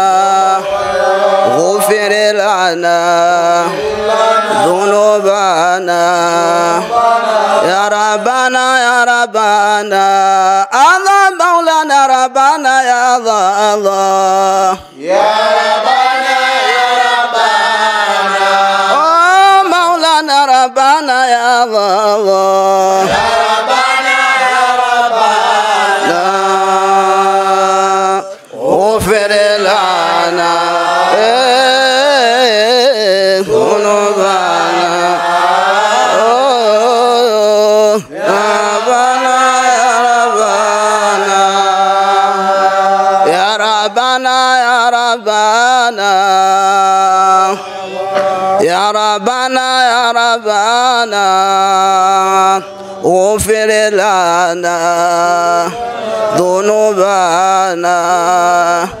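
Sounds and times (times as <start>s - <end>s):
men chanting into microphones: 0.0s - 59.0s.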